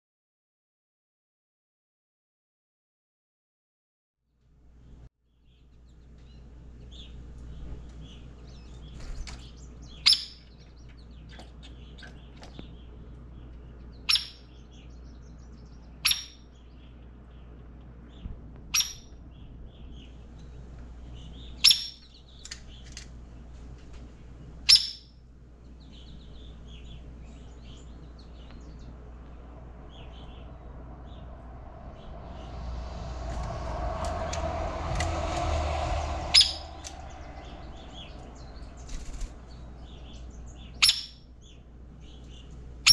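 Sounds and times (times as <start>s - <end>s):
low steady hum: 16.6s - 42.9s.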